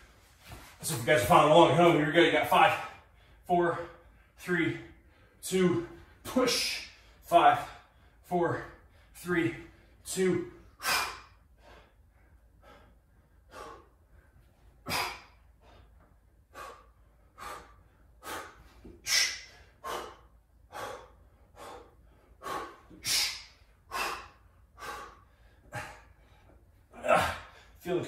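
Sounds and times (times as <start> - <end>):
person breathing hard: 10.6 - 27.9.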